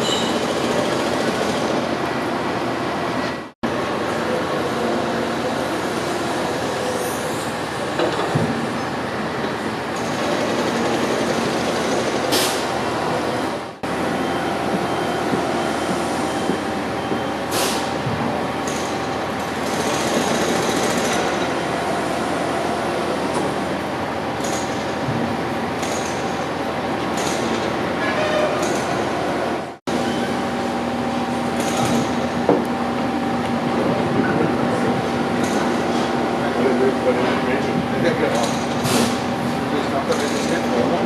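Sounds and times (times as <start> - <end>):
heavy diesel machinery running: 0.0 - 41.0
air hiss bursts: 17.5 - 18.0.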